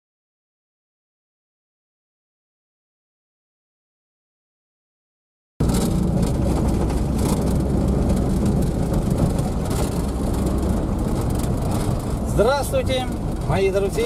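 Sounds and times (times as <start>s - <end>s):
engine and tyre rumble: 5.6s - 14.0s
knocks and rattles: 5.6s - 14.0s.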